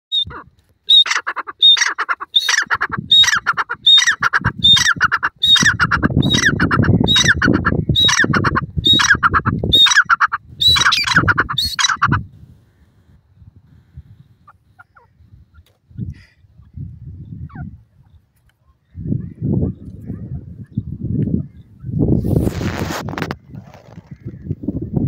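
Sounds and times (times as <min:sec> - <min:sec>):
francolin calling: 0:00.1 - 0:12.8.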